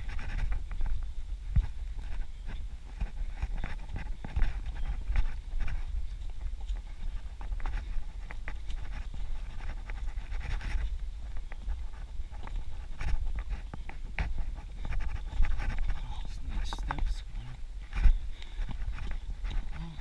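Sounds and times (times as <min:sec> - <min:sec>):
wind rumble on microphone: 0:00.0 - 0:20.0
heavy breathing: 0:18.0 - 0:19.0.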